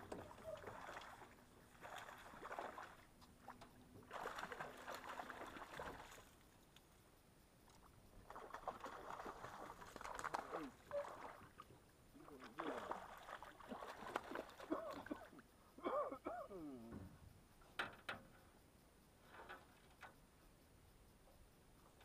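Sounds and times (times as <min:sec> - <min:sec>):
water splashing and slapping: 0:00.0 - 0:06.3, 0:08.2 - 0:15.4.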